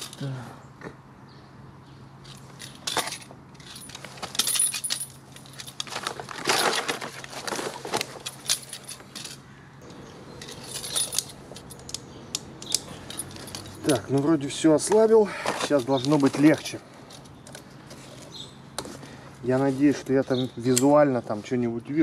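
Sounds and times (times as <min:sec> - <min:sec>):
metal tools clinking on bolts: 0:02.2 - 0:07.1, 0:08.2 - 0:09.4, 0:10.3 - 0:17.6.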